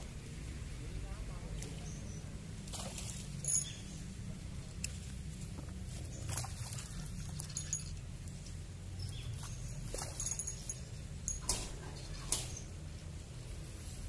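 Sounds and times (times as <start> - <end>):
fish splashing in water: 2.6 - 3.6, 6.1 - 7.6.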